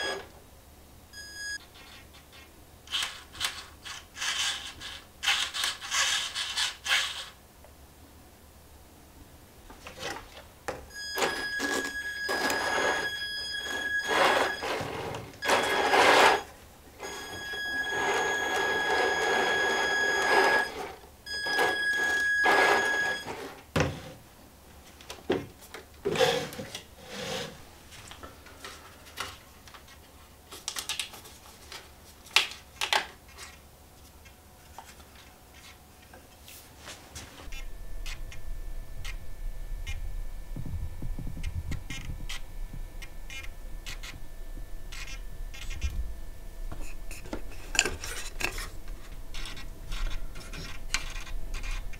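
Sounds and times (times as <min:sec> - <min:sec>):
toy truck motor whining: 0:02.9 - 0:07.3, 0:11.2 - 0:23.4.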